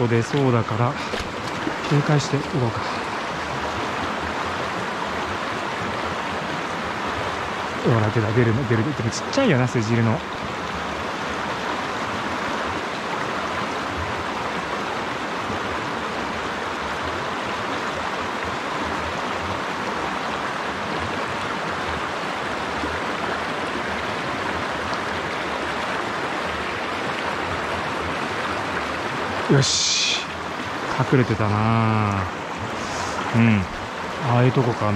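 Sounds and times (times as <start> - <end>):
stream running over stones: 0.0 - 34.9.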